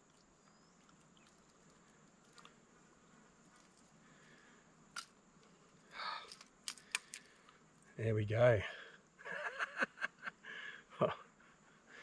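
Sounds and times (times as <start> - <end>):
faint clicks of hooks: 0.0 - 2.6, 3.5 - 7.9.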